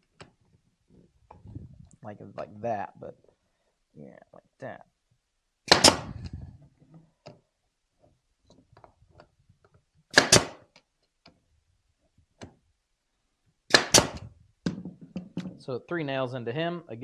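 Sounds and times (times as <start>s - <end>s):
nail gun firing: 5.7s - 6.2s, 10.1s - 10.7s, 13.7s - 14.3s.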